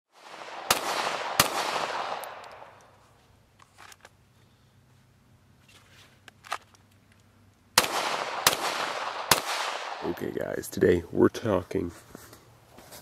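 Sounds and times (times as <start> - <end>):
pistol shots: 0.2 - 2.8, 7.8 - 10.2.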